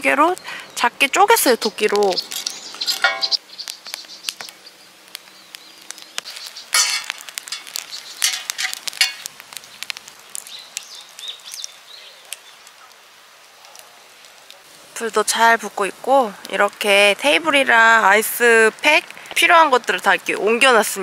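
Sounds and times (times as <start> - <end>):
wood fire crackling and popping: 0.0 - 21.0
wood knocking into fire: 5.9 - 10.5.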